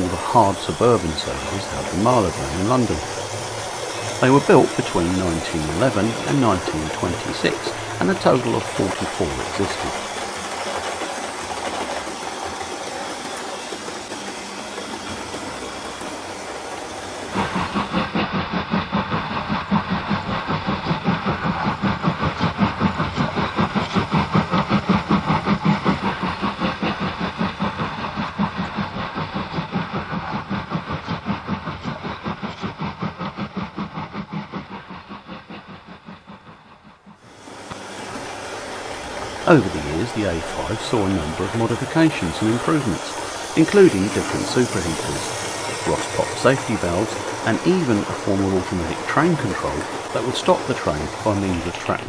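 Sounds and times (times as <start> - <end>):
steady hiss: 0.0 - 13.4, 37.3 - 52.0
model train rhythmic beat: 0.0 - 52.0.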